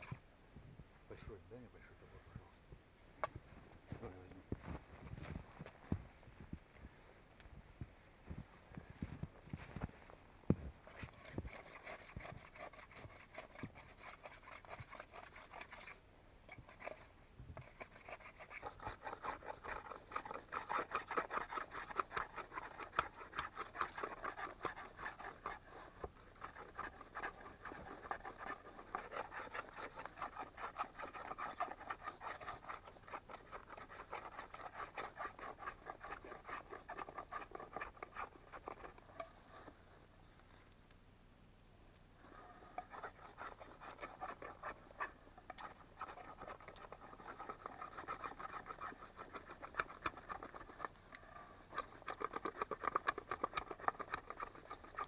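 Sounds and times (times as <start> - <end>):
blade scraping bark off wood: 0.0 - 0.2, 10.8 - 39.8, 42.6 - 55.0.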